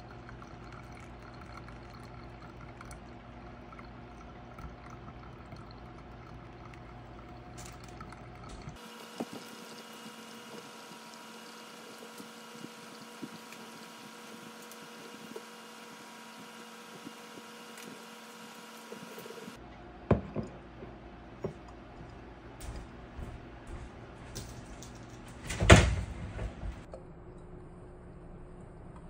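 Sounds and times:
faint steady hum: 0:00.0 - 0:29.0
mug knocking on countertop: 0:20.1 - 0:20.6.

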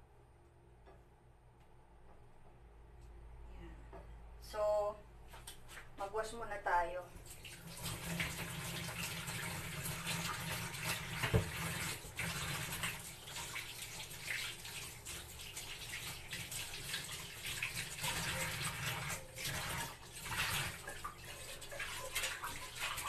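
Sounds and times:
tap water running into sink: 0:07.2 - 0:23.0
knock: 0:11.2 - 0:11.5.

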